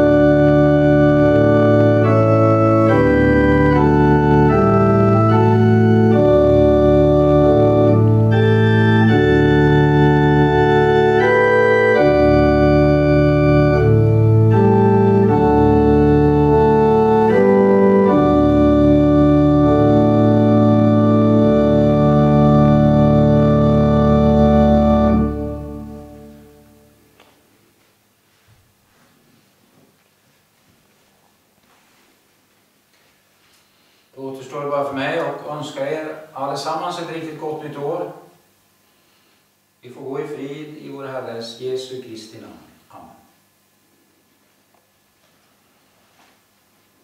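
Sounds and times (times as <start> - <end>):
church organ chords: 0.0 - 27.5.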